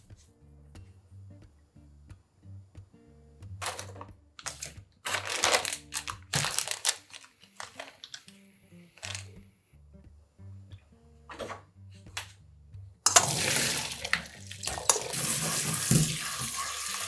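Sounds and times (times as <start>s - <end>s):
soft background music: 0.0s - 17.0s
plastic packets crinkling: 3.6s - 8.4s, 9.0s - 9.4s.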